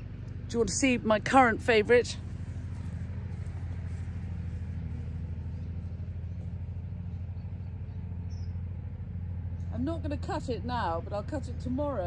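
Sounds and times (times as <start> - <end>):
lawn mower engine rumbling: 0.0 - 12.0.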